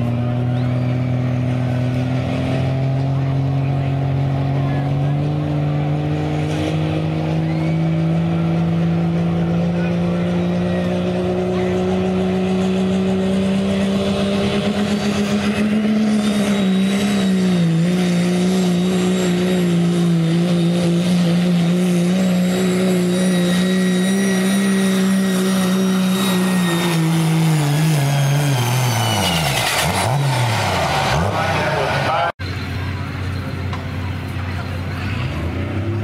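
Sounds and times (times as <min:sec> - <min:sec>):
diesel pickup engine at high revs: 0:00.0 - 0:36.0.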